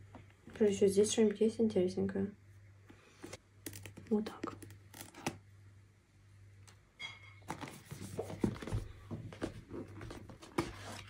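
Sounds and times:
cardboard scraping and rustling: 0:07.5 - 0:11.0.

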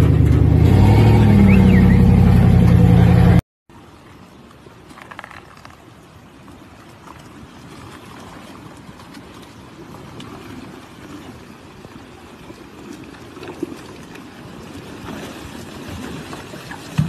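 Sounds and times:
cars moving through mud and water: 0:00.0 - 0:17.0.

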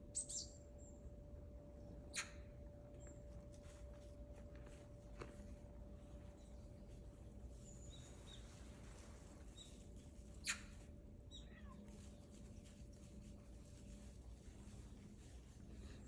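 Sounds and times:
small birds chirping: 0:00.1 - 0:00.9, 0:07.5 - 0:12.4.

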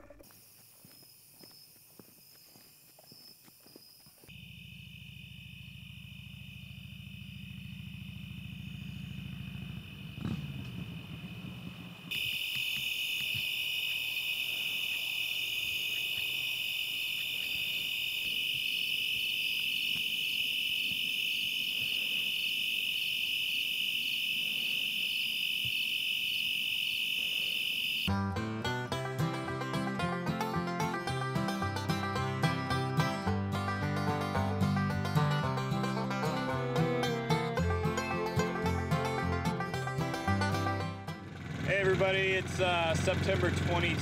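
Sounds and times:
insect chorus chirring: 0:00.0 - 0:28.2
low hum: 0:04.3 - 0:12.1.

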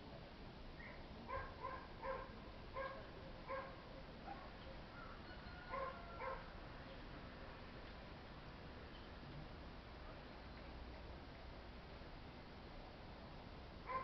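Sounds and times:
dog barking: 0:00.8 - 0:04.5, 0:05.7 - 0:06.5.

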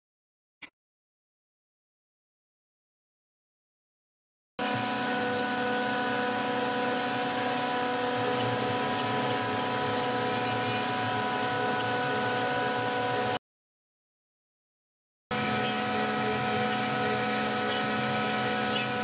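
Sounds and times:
router spindle whine cutting wood: 0:04.6 - 0:13.4, 0:15.3 - 0:19.0.

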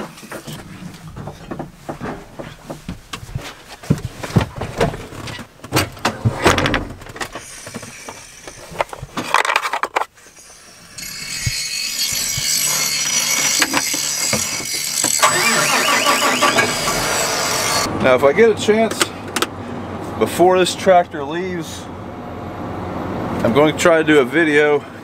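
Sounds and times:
tractor cab hiss and hum: 0:07.3 - 0:08.9, 0:15.2 - 0:17.9.

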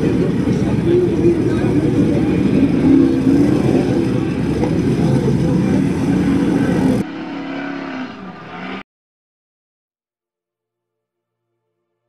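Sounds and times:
truck engine revving hard: 0:00.0 - 0:08.8.

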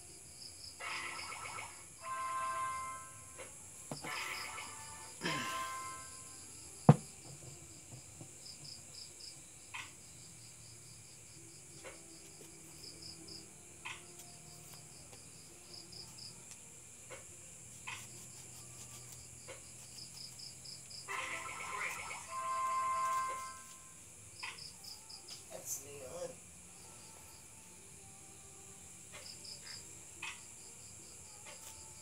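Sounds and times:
crickets chirping: 0:00.0 - 0:32.0
high insect hiss: 0:00.0 - 0:32.0
knife cutting lemon peel: 0:17.7 - 0:20.6.

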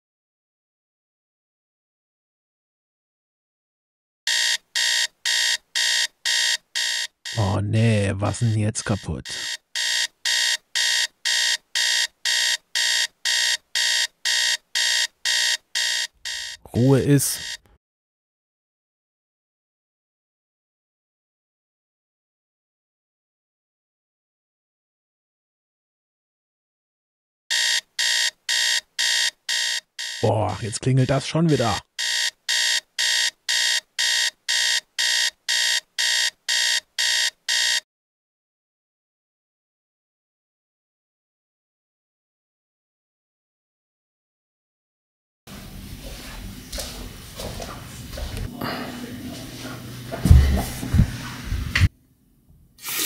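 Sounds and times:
phone alarm beeping: 0:04.3 - 0:07.6, 0:08.8 - 0:16.7, 0:17.3 - 0:17.7, 0:27.5 - 0:37.8.

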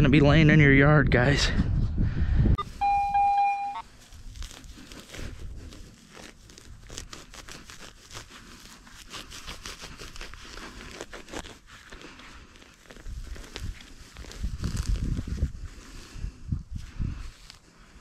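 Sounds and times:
electronic beep: 0:02.6 - 0:03.8
rustling of dirt and grass: 0:02.6 - 0:18.0.

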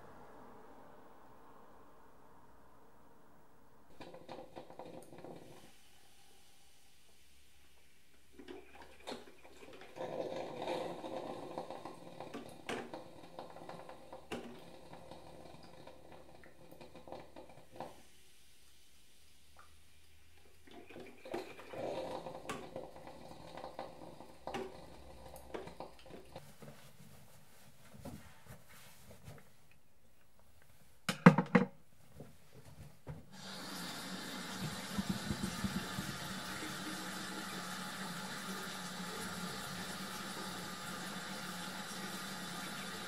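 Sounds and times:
coffee maker gurgling and popping: 0:03.9 - 0:06.0, 0:07.1 - 0:18.8, 0:19.4 - 0:26.6, 0:33.1 - 0:43.0
objects knocking on wooden shelf: 0:31.1 - 0:31.8
tap running into sink: 0:33.1 - 0:37.8.

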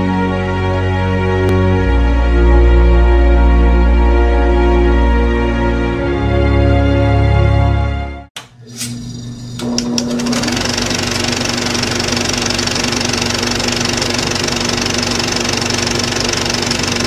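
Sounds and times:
small machine humming and clattering: 0:08.6 - 0:17.0
machine clicks: 0:09.6 - 0:17.0.

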